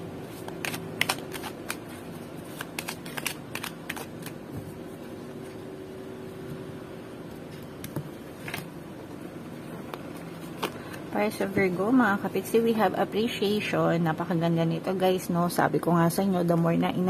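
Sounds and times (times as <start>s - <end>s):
cards being shuffled: 0.3s - 4.8s.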